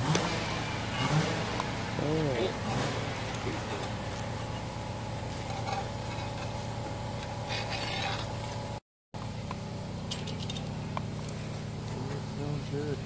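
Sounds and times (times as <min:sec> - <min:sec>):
low mechanical hum: 0:00.0 - 0:13.0
campfire burning: 0:00.1 - 0:12.2
pot scraping: 0:02.5 - 0:08.8.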